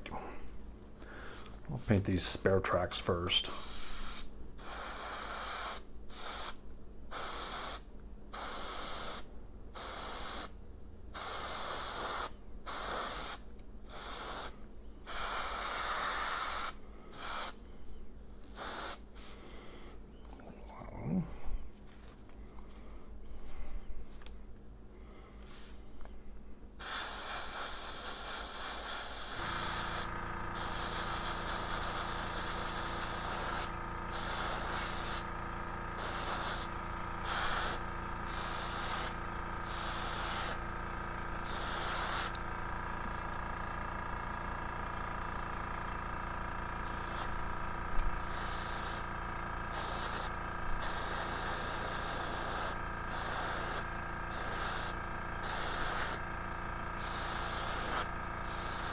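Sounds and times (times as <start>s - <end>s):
compressor hum: 0.0s - 5.1s, 9.2s - 58.9s
airbrush spraying hiss: 3.5s - 10.6s, 11.2s - 17.6s, 18.2s - 19.4s, 25.4s - 25.8s, 26.8s - 35.3s, 36.0s - 40.6s, 41.4s - 42.4s, 46.8s - 47.5s, 48.2s - 49.1s, 49.7s - 56.2s, 57.0s - 58.9s.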